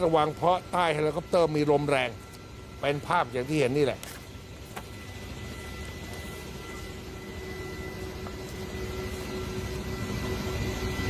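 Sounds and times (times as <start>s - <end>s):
helicopter engines and rotors: 0.0s - 11.0s.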